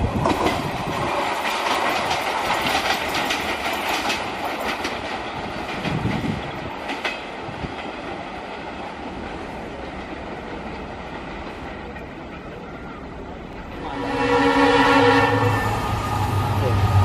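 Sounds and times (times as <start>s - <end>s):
train wheels clattering over rails: 0.0s - 17.0s
sharp clacks: 1.4s - 6.2s.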